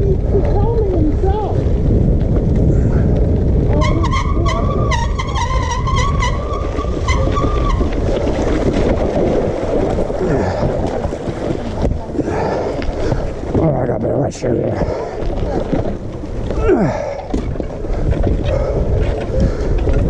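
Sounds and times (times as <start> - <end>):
bicycle rattling on rough track: 0.0 - 20.0
wind buffeting microphone: 0.0 - 20.0.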